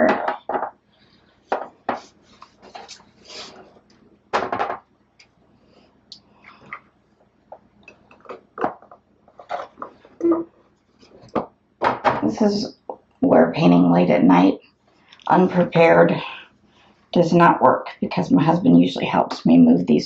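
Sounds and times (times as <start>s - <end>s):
painting supplies knocking on a table: 0.0s - 0.8s, 1.5s - 2.1s, 4.3s - 4.9s, 11.2s - 12.2s.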